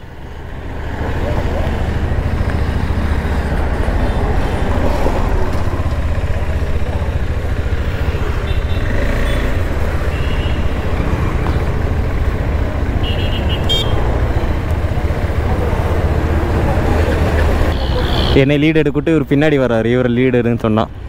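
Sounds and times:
motorcycle engine idling: 5.6s - 16.9s.

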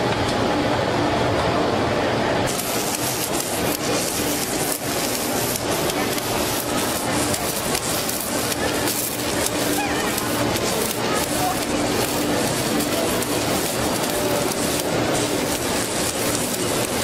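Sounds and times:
crackling hiss of arc welding: 2.5s - 17.0s
hand tool scraping welding flux: 2.5s - 17.0s.

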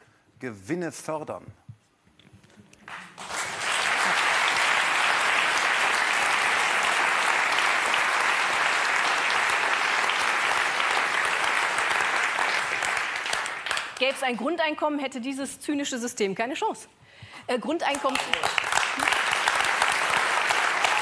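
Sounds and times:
audience applauding: 2.9s - 14.2s, 17.9s - 21.0s.

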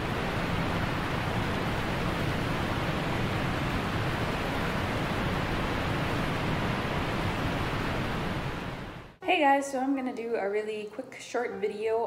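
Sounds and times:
steady rushing noise: 0.0s - 9.2s.

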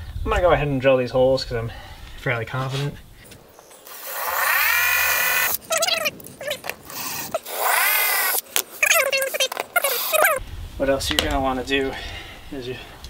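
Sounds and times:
cordless drill whining: 3.9s - 5.6s, 6.8s - 8.4s, 9.8s - 10.4s
drill trigger blips: 3.9s - 5.6s.

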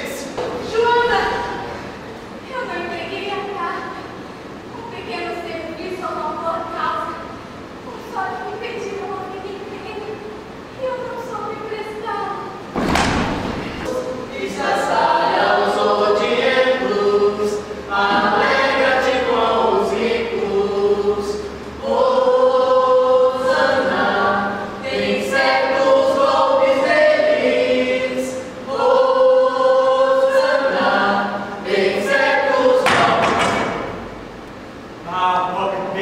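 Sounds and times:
group of voices singing in chorus: 13.6s - 34.1s.

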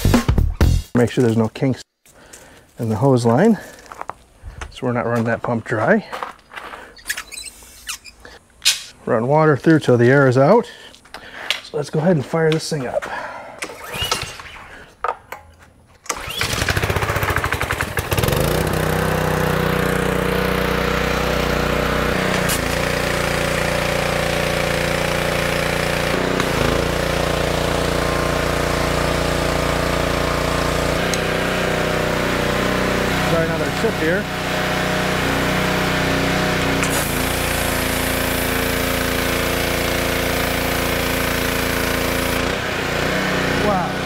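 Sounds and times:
pressure washer engine running: 16.1s - 44.0s.

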